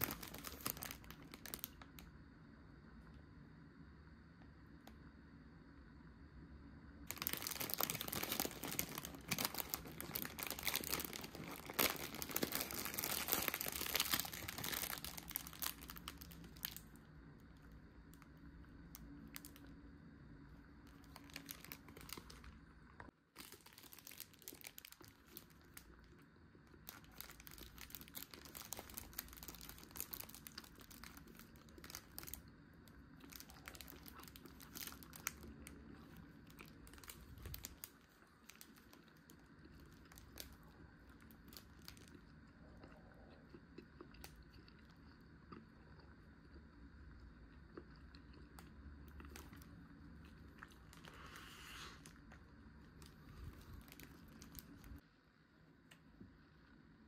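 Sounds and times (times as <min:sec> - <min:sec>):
plastic packaging crinkling: 0:00.0 - 0:02.0, 0:07.0 - 0:17.0, 0:18.9 - 0:19.7, 0:20.8 - 0:22.6, 0:23.4 - 0:32.5, 0:33.1 - 0:42.2, 0:50.3 - 0:55.0.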